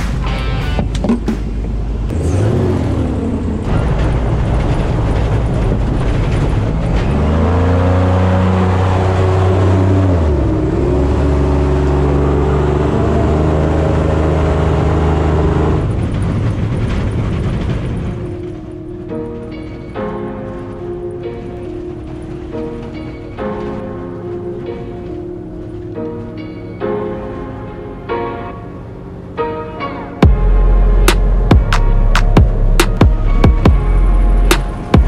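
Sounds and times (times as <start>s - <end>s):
steady rushing noise: 2.9s - 35.0s.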